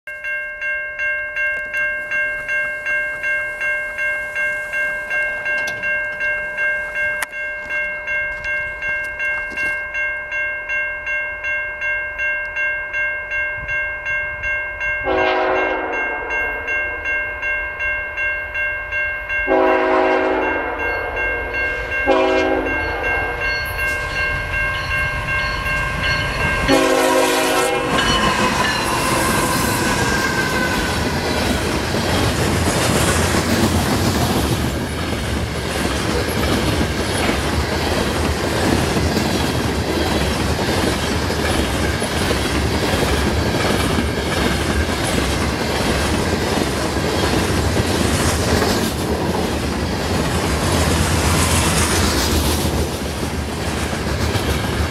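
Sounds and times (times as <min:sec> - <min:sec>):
level crossing warning bell: 0:00.1 - 0:54.9
locomotive engine and wheels: 0:00.1 - 0:54.9
locomotive horn: 0:15.0 - 0:16.7, 0:19.5 - 0:23.7, 0:26.7 - 0:31.1.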